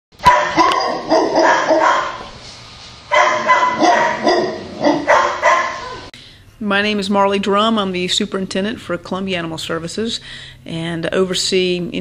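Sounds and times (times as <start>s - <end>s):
dogs barking: 0.2s - 2.4s, 3.1s - 6.1s.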